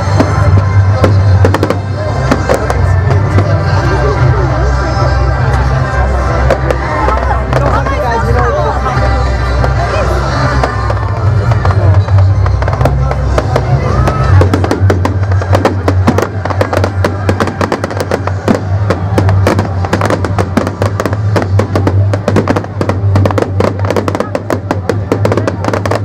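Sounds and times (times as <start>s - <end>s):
fireworks crackling and banging: 0.0s - 26.0s
music playing: 0.0s - 26.0s.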